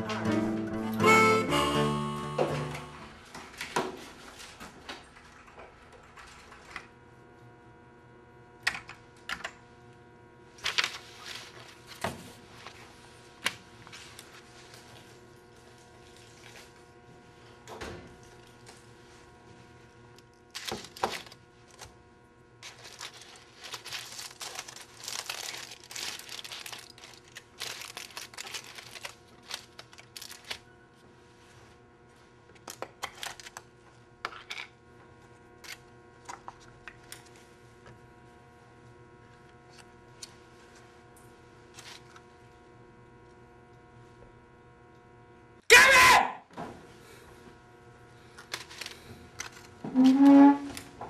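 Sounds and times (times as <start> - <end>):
low room hum: 0.0 - 51.0
aluminium foil crinkling: 20.5 - 22.0, 22.6 - 30.7, 32.6 - 33.6, 48.4 - 50.8.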